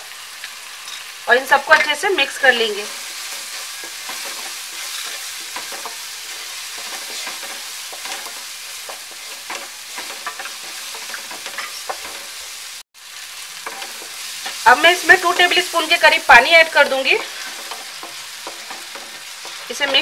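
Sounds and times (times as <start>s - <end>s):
food sizzling in oil: 0.0s - 20.0s
spatula scraping pan: 2.8s - 12.6s, 13.6s - 16.0s, 16.7s - 20.0s.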